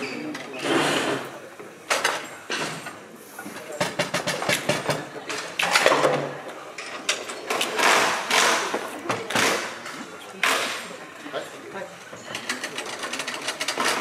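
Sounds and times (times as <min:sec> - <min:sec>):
tournament hall clatter: 0:00.0 - 0:14.0
foosball rods clacking and rattling: 0:12.2 - 0:14.0.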